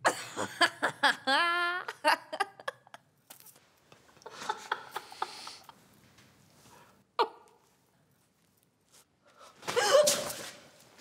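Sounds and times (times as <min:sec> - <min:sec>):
woman laughing: 0:00.0 - 0:03.0.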